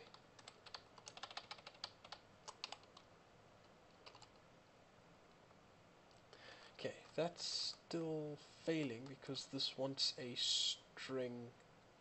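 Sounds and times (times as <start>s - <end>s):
faint keyboard typing: 0.0s - 4.5s, 8.8s - 9.3s.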